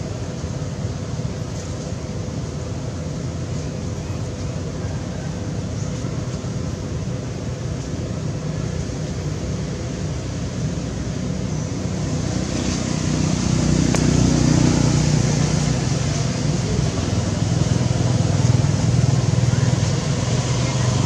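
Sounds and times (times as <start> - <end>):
road traffic rumble: 0.0 - 21.0
vehicle approaching: 9.8 - 21.0.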